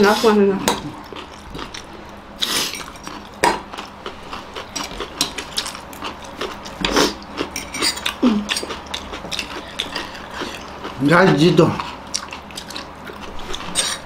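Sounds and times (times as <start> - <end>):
forks scraping on plates: 7.5 - 10.7.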